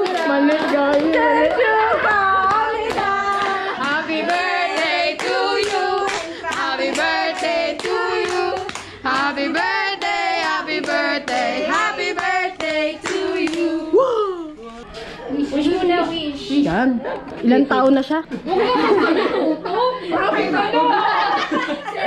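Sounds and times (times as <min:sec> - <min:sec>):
hands clapping in a beat: 0:00.0 - 0:01.6, 0:02.5 - 0:13.7
voices singing together: 0:00.0 - 0:14.7.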